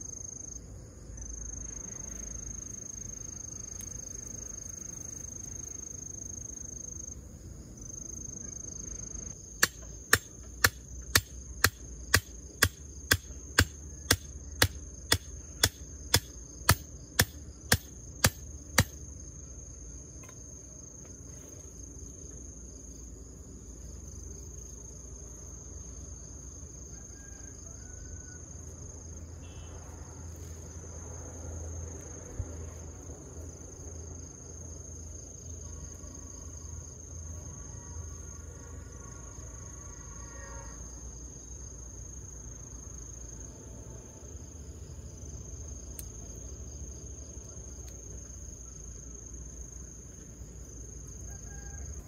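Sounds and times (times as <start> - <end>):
crickets chirring: 0.0 - 52.0
hammer blows on wooden stake: 9.6 - 19.0.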